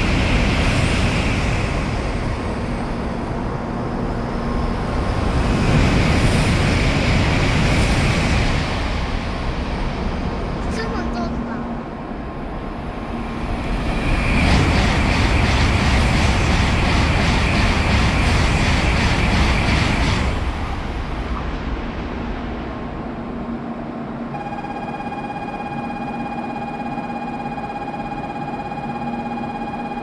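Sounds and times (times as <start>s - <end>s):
low hum: 0.0s - 30.0s
train passing at speed: 0.0s - 30.0s
steady electronic tone: 24.2s - 30.0s
rhythmic wheel clatter: 24.3s - 30.0s.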